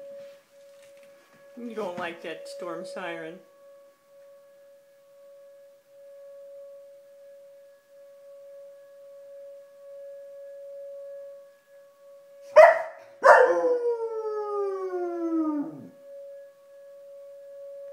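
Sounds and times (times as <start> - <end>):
storm warning siren: 0.0 - 17.9
dog crying and howling: 12.5 - 15.9.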